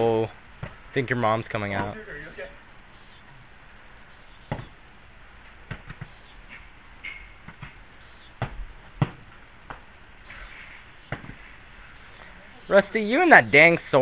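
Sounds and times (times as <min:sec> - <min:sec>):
padded swords thudding: 0:08.4 - 0:09.8.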